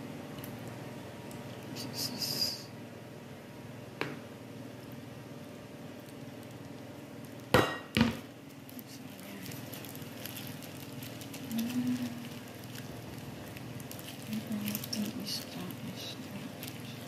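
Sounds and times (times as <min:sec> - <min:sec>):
kitchenware knocking on counter: 0:07.6 - 0:08.2.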